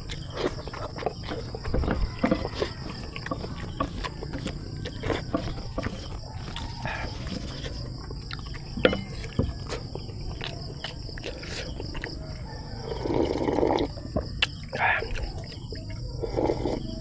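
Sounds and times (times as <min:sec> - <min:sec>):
insects droning: 0:00.0 - 0:17.0
mouth clicks: 0:13.1 - 0:16.8.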